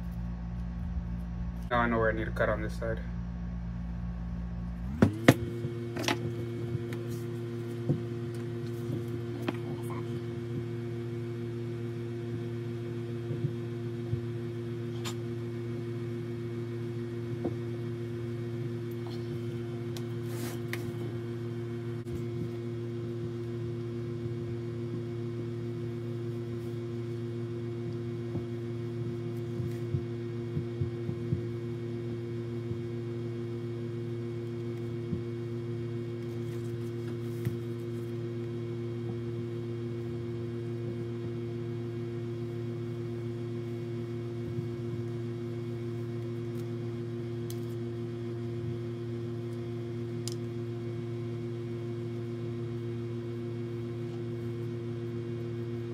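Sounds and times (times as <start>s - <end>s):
steady low hum: 0.0s - 55.9s.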